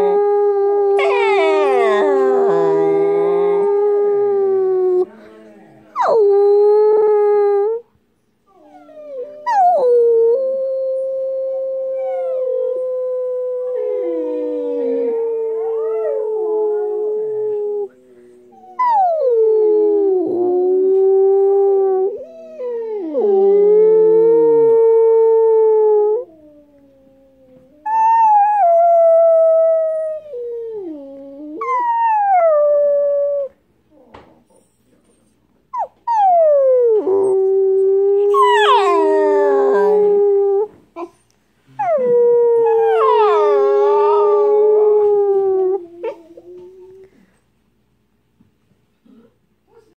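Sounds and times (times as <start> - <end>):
dogs howling: 0.8 - 5.0, 11.5 - 19.3, 36.1 - 40.7, 41.8 - 47.1.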